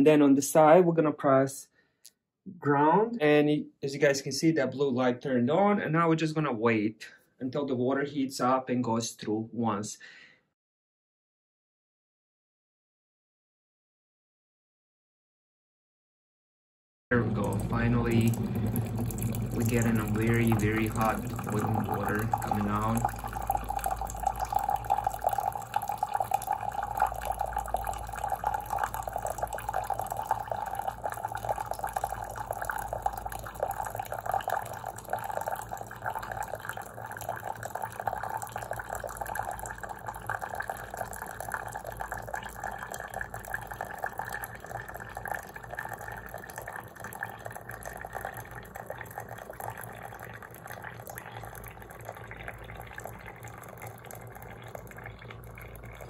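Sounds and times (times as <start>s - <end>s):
coffee maker low hum: 17.1s - 56.0s.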